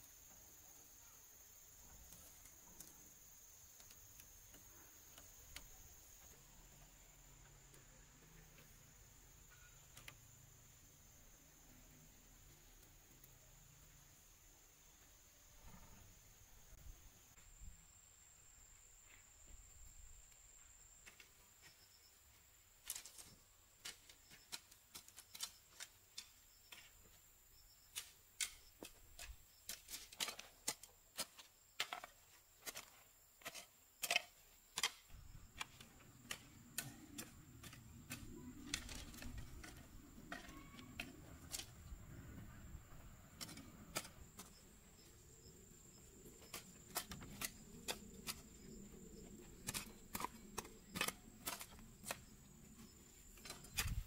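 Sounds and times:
soft rustling of plants: 0.0s - 54.0s
bamboo stakes clicking and tapping: 22.8s - 26.9s, 27.9s - 41.7s.

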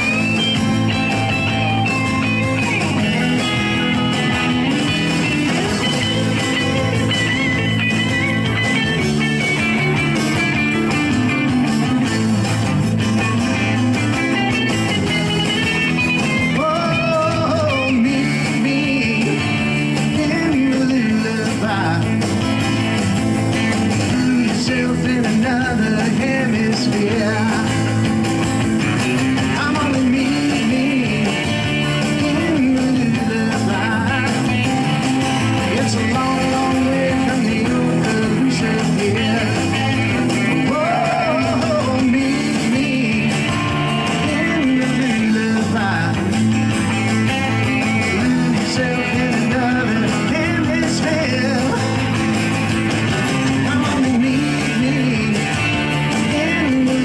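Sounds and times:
rock music on electric guitars: 0.0s - 57.0s
person singing: 16.4s - 22.2s, 24.0s - 28.0s, 29.5s - 34.6s, 35.6s - 46.4s, 47.5s - 52.2s, 53.2s - 57.0s.

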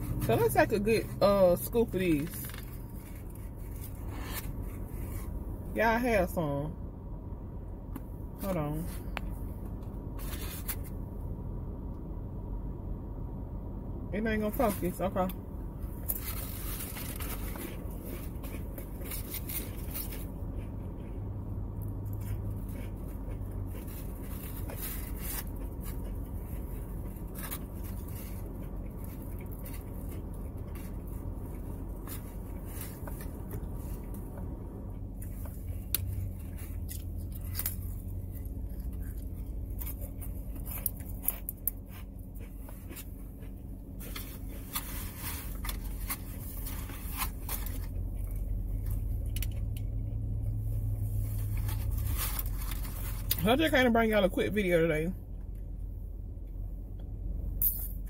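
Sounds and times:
steady low hum: 0.0s - 58.0s
chewing and crunching: 1.6s - 5.5s, 15.8s - 53.4s.

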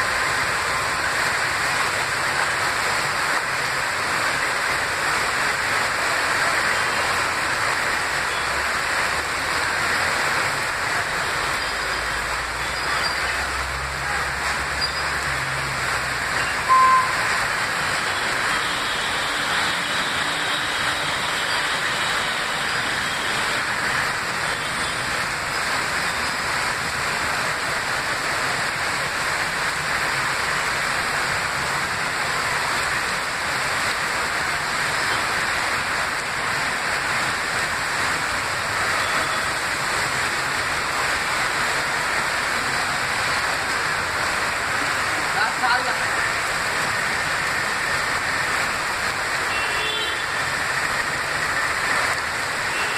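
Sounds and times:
heavy rain pouring: 0.0s - 52.9s
traffic wading through floodwater: 0.0s - 52.9s
loud tone: 16.4s - 17.4s.

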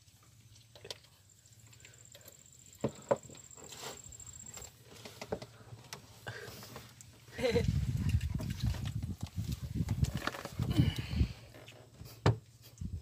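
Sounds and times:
faint high whine: 1.1s - 5.1s.

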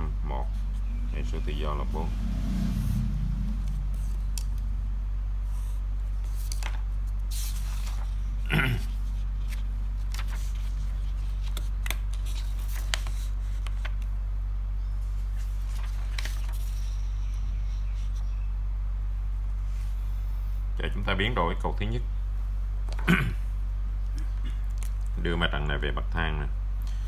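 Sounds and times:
steady low hum: 0.0s - 27.0s
paper rustling: 5.5s - 14.1s, 15.1s - 17.2s.

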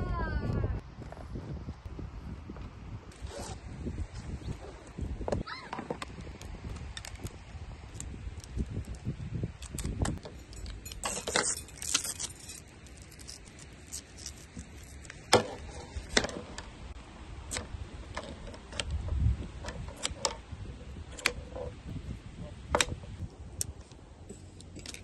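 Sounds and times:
small metal items jingling: 10.2s - 15.0s.

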